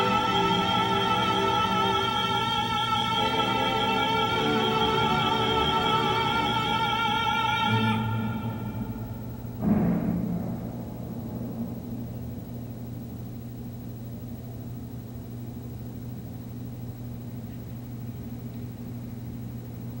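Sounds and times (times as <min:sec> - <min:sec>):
distant city hum: 0:00.0 - 0:14.7.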